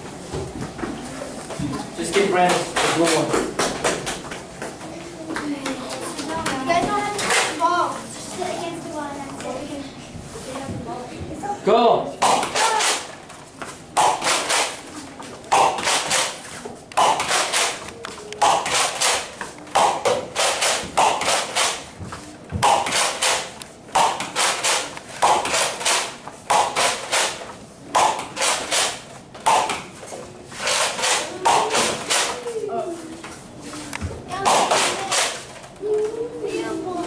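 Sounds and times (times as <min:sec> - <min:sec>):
toy blaster pumping and firing: 0:12.2 - 0:13.1, 0:14.0 - 0:14.8, 0:15.5 - 0:16.4, 0:17.0 - 0:17.8, 0:18.4 - 0:21.8, 0:22.6 - 0:27.4, 0:28.0 - 0:29.8, 0:30.6 - 0:32.4, 0:34.5 - 0:35.4.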